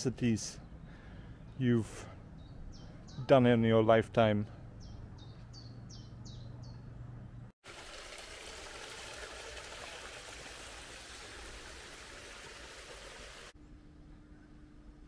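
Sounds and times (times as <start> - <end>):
water rushing down a ditch: 7.6 - 13.6.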